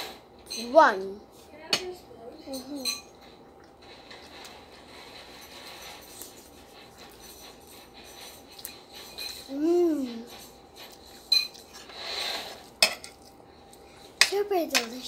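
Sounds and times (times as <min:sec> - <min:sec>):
cutlery clinking on plates: 0:02.5 - 0:03.3, 0:04.0 - 0:13.4
child humming: 0:09.5 - 0:10.3.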